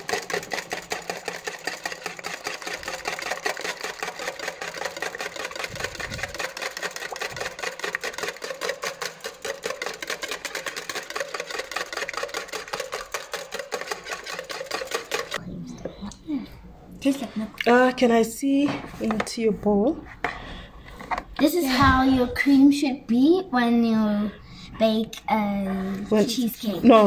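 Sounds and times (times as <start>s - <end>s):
whisk beating cream in bowl: 0.0s - 15.4s.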